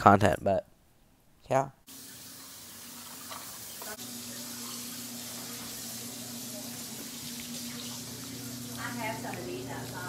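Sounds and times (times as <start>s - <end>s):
water running from tap into sink: 1.9s - 10.0s.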